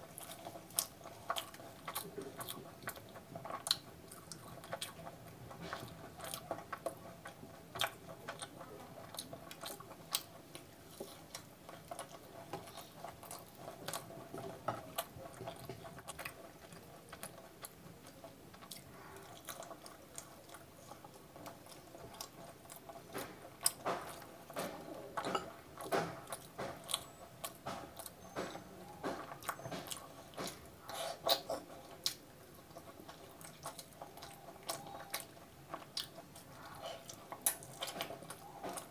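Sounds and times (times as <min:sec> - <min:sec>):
biting and wet chewing: 0:00.0 - 0:38.9.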